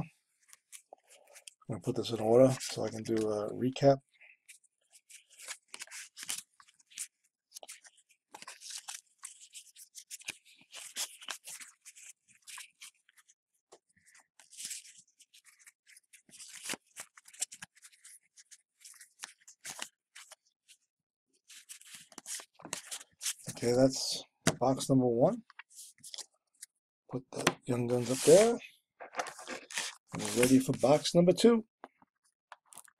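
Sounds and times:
trading cards rustling and clicking: 0.4 - 3.4, 4.4 - 20.4, 21.5 - 23.8, 27.3 - 31.1.

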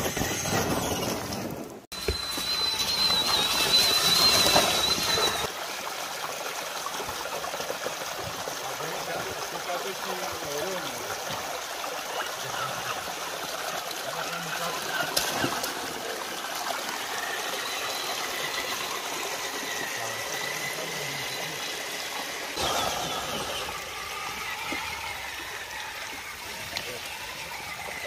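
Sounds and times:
creek water over rocks: 0.0 - 28.0
wheels splashing water: 0.0 - 28.0
electric motor whine: 2.0 - 5.5, 16.9 - 28.0.

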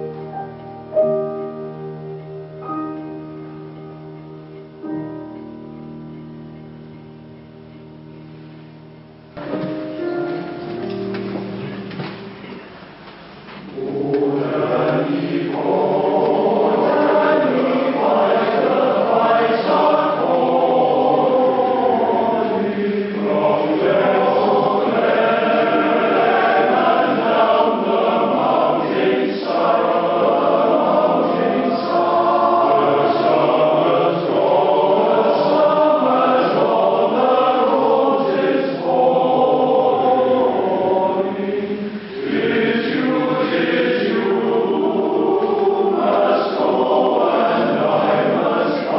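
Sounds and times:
choir singing: 13.7 - 48.9.

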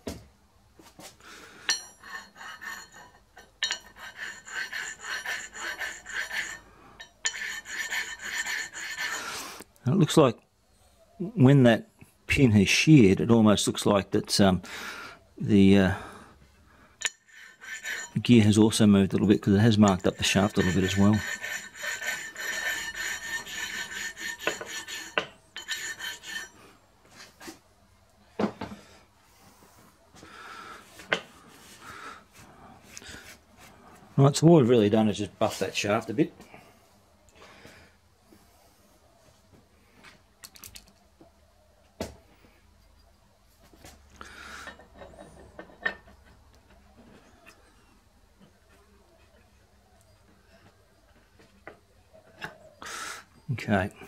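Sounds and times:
oil stone scraping steel: 1.7 - 9.7, 17.0 - 27.5.

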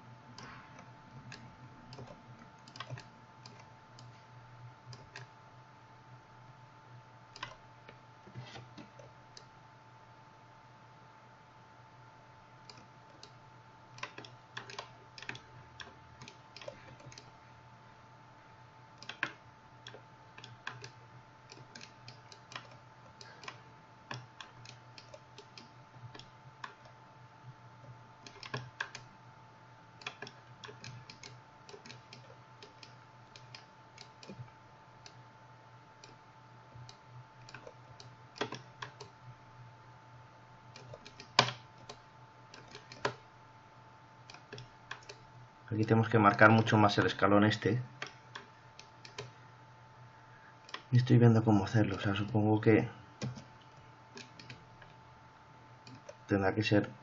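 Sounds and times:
faint steady hum: 0.0 - 57.0
mouse and keyboard clicking: 14.0 - 17.3, 19.0 - 22.8, 28.3 - 29.1, 30.0 - 34.5, 38.4 - 39.1, 40.8 - 42.0, 42.6 - 43.2, 44.3 - 45.2, 48.0 - 49.3.

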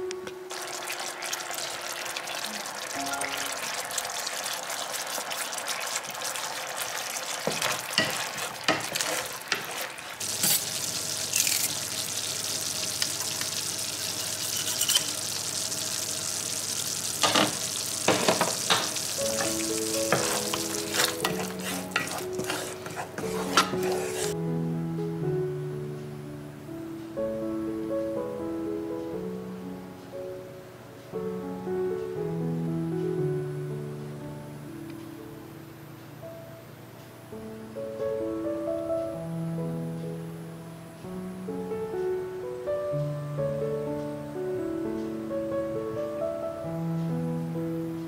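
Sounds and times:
sauce sizzling in a frying pan: 0.5 - 24.4
background music: 2.4 - 4.4, 19.0 - 36.5
wooden spoon scraping a pan: 6.9 - 11.9, 14.1 - 15.2, 18.2 - 24.4.

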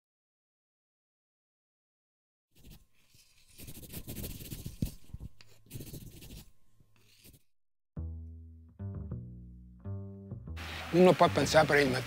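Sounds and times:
pencil scratching on paper: 2.6 - 7.5
plucked bass note: 8.0 - 10.7.

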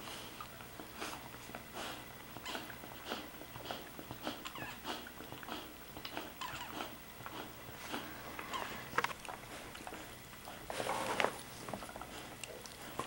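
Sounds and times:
puppy squeaking: 6.4 - 6.8.

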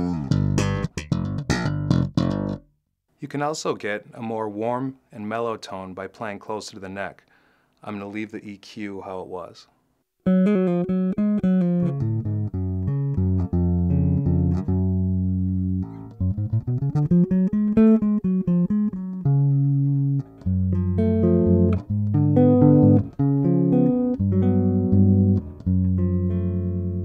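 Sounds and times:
electric bass riff plucked fingerstyle: 0.0 - 2.7, 10.2 - 27.0.

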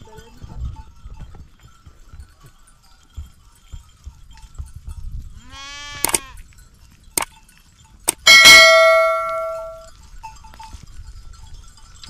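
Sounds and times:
metallic clinks: 0.0 - 5.5, 6.1 - 12.0
livestock bell clanging: 0.0 - 12.0
sheep bleating: 5.4 - 6.4.

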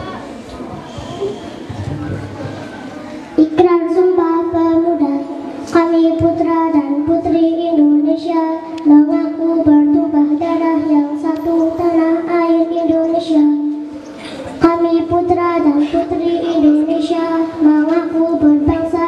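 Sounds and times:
girl singing into a microphone: 3.4 - 19.0.

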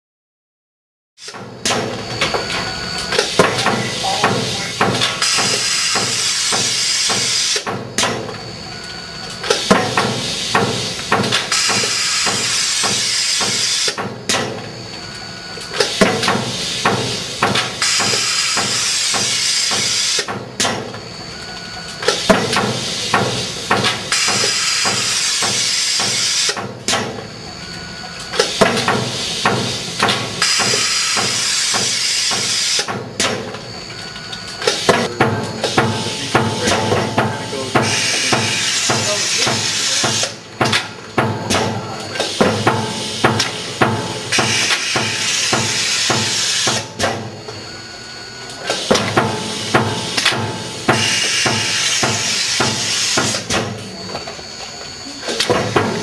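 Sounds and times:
sheet extractor hiss: 1.2 - 7.9, 9.0 - 14.1, 15.3 - 54.0
die-cutting press clacks: 1.3 - 8.4, 9.3 - 14.8, 15.6 - 21.0, 21.9 - 27.2, 28.3 - 33.6, 34.6 - 47.6, 48.5 - 53.9.

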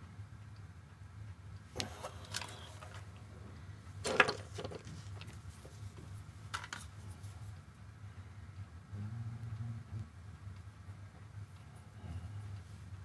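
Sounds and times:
steady low hum: 0.0 - 13.0
metal part handling rustles: 4.0 - 5.8, 6.5 - 7.3.

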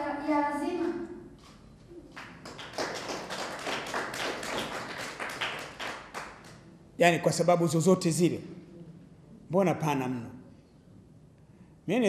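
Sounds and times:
audience applauding: 2.1 - 6.6.

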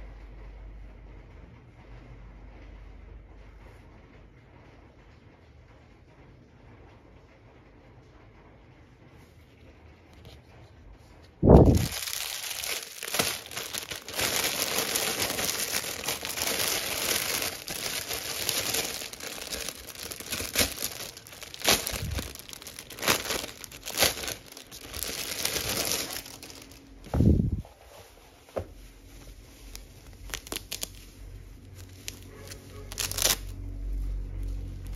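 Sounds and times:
plastic bag crinkling: 11.4 - 27.6, 29.0 - 33.6.

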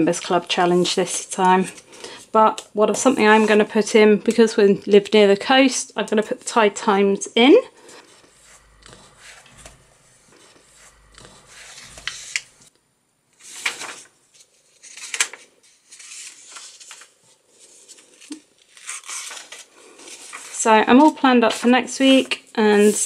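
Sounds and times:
notebook pages turning: 7.8 - 12.7, 13.4 - 21.7.

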